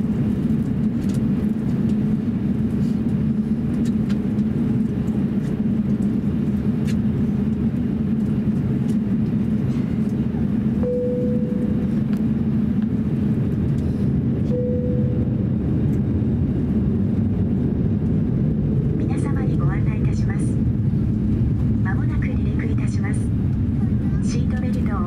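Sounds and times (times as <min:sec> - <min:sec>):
cabin air noise: 0:00.0 - 0:25.0
jet engine rumble: 0:00.0 - 0:25.0
short steady tone: 0:10.8 - 0:11.8, 0:14.4 - 0:15.3.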